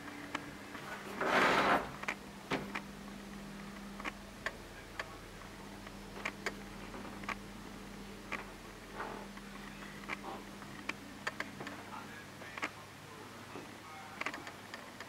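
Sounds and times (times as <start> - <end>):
low steady hum: 0.0 - 15.0
loud rustle: 0.9 - 2.1.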